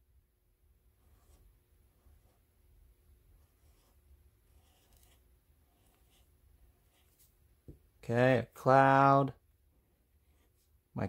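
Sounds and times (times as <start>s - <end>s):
low room hum: 0.0s - 11.0s
marker rubbing on paper: 1.0s - 2.5s, 3.4s - 7.4s, 10.2s - 10.8s.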